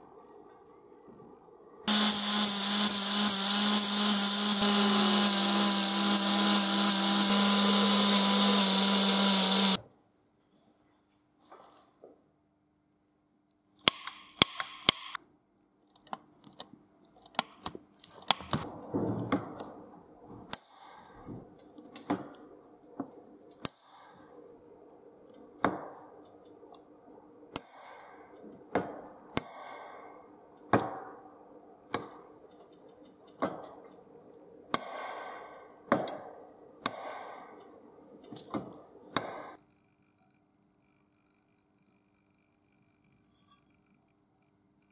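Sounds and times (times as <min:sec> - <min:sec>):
steady hum: 0:01.4 - 0:09.8
sharp metallic snaps: 0:13.8 - 0:15.2.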